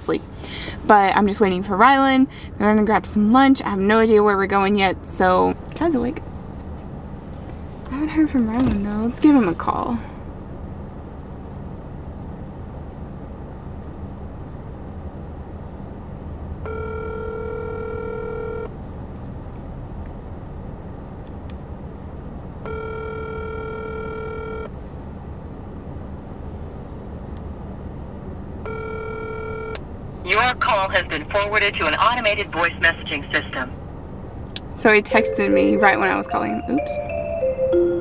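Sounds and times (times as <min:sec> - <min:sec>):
low steady hum: 0:00.0 - 0:38.0
phone ringback tone: 0:16.7 - 0:18.7, 0:22.6 - 0:24.7, 0:28.7 - 0:29.8, 0:35.2 - 0:38.0.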